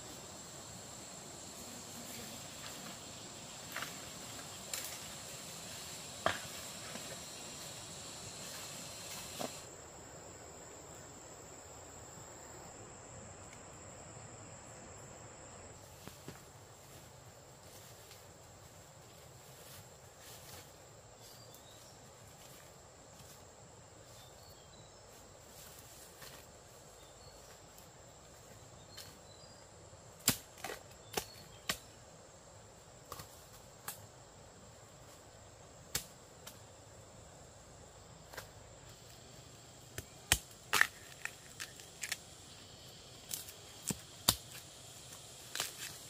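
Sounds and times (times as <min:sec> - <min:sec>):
faint high whine: 0:00.0 - 0:12.7
sharp cracks and knocks: 0:30.2 - 0:31.9, 0:33.1 - 0:34.0, 0:35.9 - 0:36.6, 0:39.9 - 0:42.2, 0:43.3 - 0:44.6.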